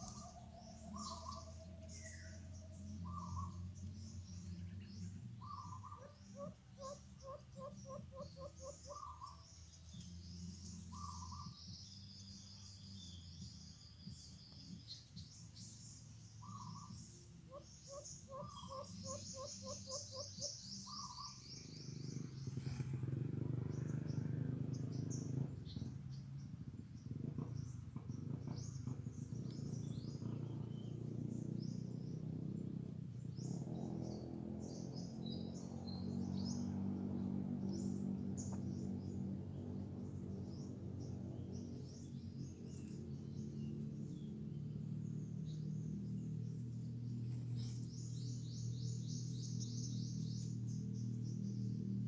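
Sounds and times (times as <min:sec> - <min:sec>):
dove cooing: 0:00.0 - 0:01.8, 0:05.4 - 0:09.3, 0:17.5 - 0:21.2
small birds chirping: 0:00.0 - 0:52.0.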